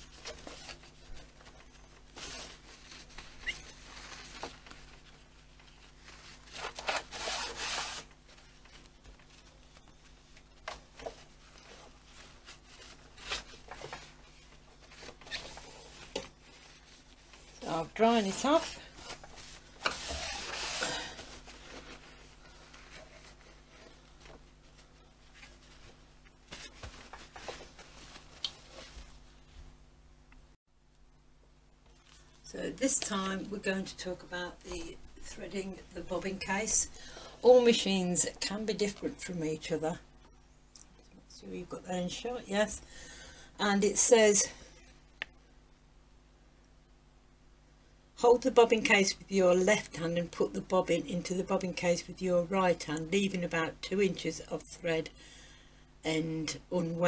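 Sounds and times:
cloth wiping a sewing machine: 0:00.0 - 0:09.5, 0:11.0 - 0:29.5.

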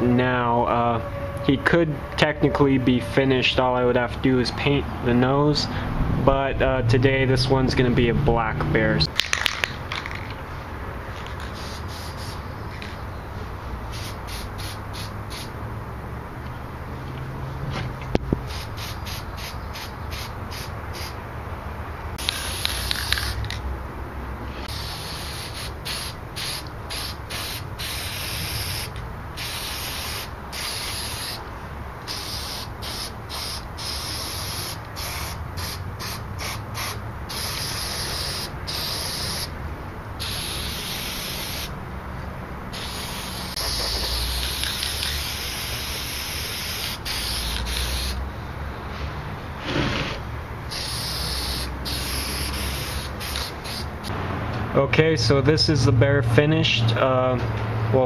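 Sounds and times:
spray paint can hissing: 0:11.2 - 0:13.0, 0:13.9 - 0:15.5, 0:18.4 - 0:21.2, 0:22.2 - 0:23.6, 0:24.7 - 0:31.4, 0:32.0 - 0:39.5, 0:40.2 - 0:41.7, 0:42.7 - 0:48.2, 0:50.7 - 0:54.1.

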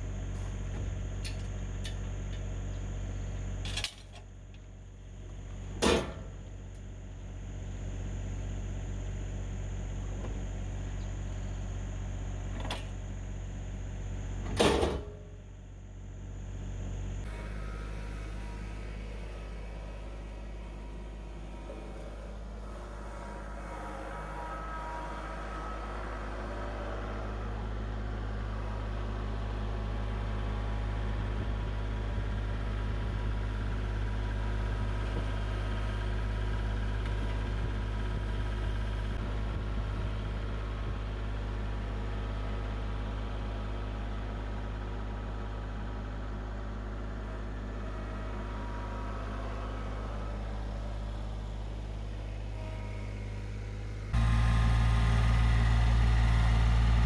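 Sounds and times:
tractor diesel engine passing: 0:15.5 - 0:57.0.

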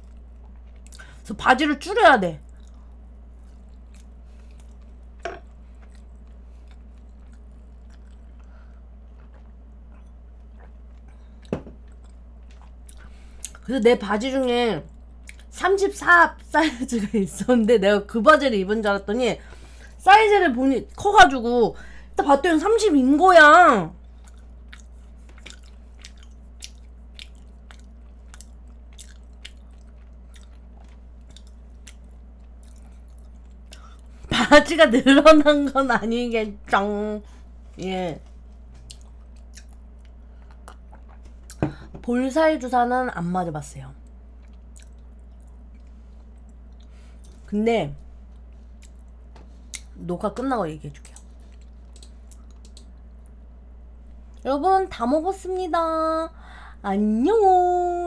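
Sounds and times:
chewing: 0:00.0 - 0:01.2, 0:02.4 - 0:13.7, 0:24.0 - 0:34.1, 0:38.6 - 0:41.6, 0:44.0 - 0:47.5, 0:48.2 - 0:50.0, 0:51.0 - 0:53.4
low hum: 0:00.0 - 0:58.0.

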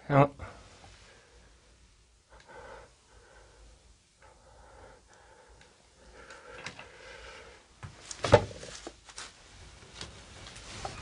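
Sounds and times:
soft breathing: 0:00.4 - 0:07.8.

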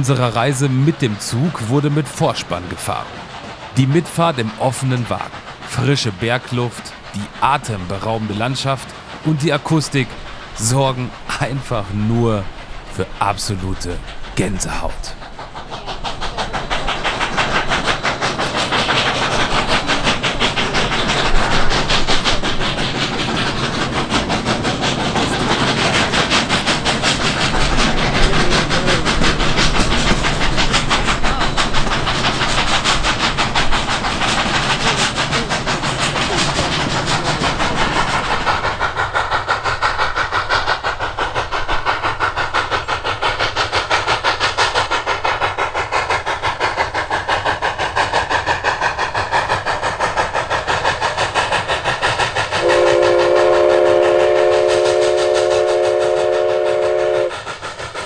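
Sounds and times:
hiss of steam: 0:00.0 - 0:58.0
steam locomotive exhaust chuffing: 0:00.0 - 0:58.0.

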